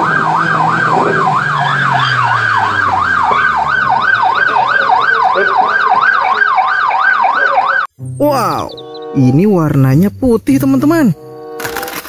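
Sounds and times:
police siren yelping: 0.0 - 9.5.

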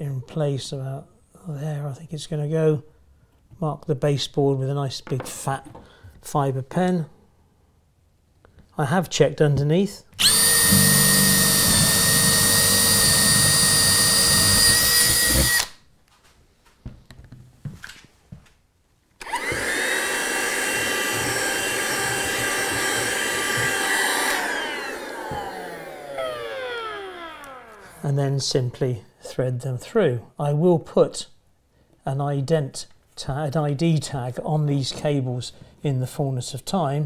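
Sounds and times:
handheld vacuum cleaner running: 10.2 - 15.7, 19.2 - 28.0
cordless drill boring: 10.2 - 15.8, 19.2 - 28.0.

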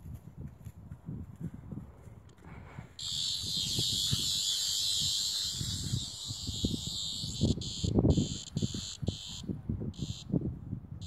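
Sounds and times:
cicada buzzing: 3.0 - 10.4.

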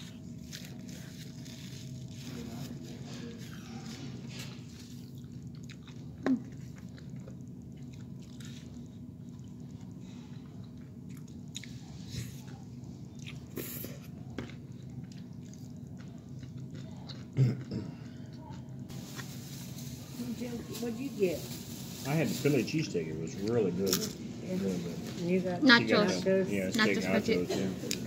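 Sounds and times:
chewing and crunching chips: 0.0 - 19.9
steady low hum: 0.0 - 28.0.

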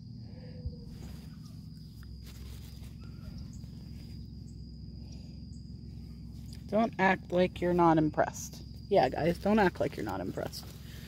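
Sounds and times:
high-pitched whine: 0.0 - 11.0
low background hum: 0.0 - 11.0
clothing rustling: 0.9 - 4.2, 9.3 - 11.0.

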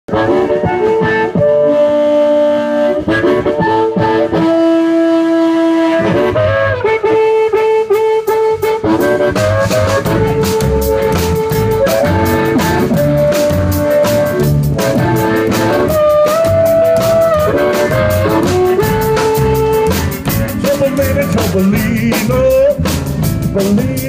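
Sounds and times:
electric guitar melody: 0.1 - 24.0
drum kit steady beat: 8.3 - 24.0
plucked upright bass: 8.9 - 24.0.

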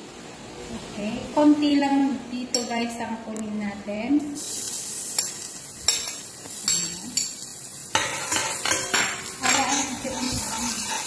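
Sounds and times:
garlic sizzling in hot oil: 4.2 - 11.0
spoon scraping pot: 8.0 - 11.0.

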